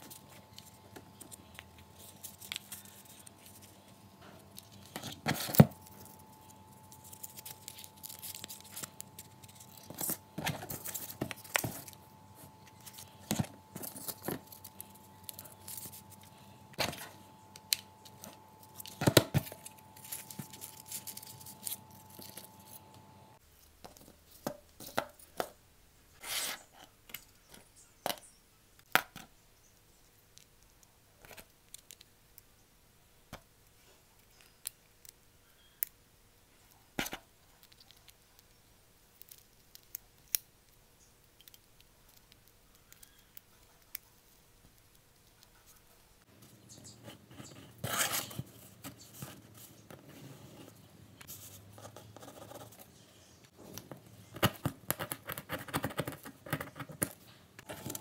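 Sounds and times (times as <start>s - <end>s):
hands handling cardboard: 0.0s - 25.6s, 45.4s - 58.0s
faint steady hum: 0.0s - 58.0s.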